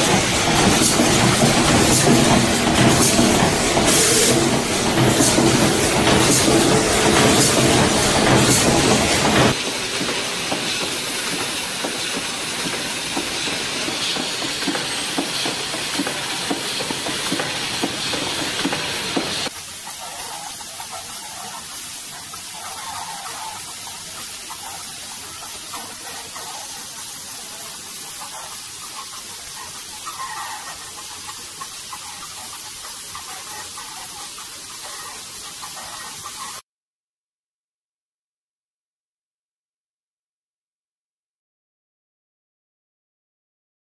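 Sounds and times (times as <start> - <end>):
production machinery running: 0.0 - 19.6
machine hiss: 0.0 - 36.6.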